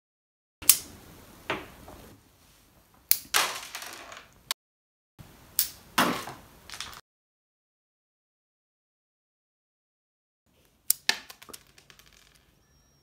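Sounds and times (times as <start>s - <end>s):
toy gun snapping: 0.6s - 0.8s, 5.6s - 5.8s, 10.9s - 11.6s
small pieces clattering: 3.3s - 4.4s, 6.0s - 7.0s, 11.1s - 12.6s.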